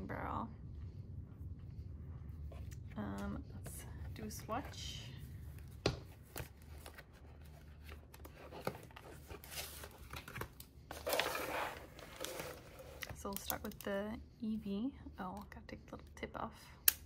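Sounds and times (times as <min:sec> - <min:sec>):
plastic and paper rustling: 0:04.2 - 0:13.8.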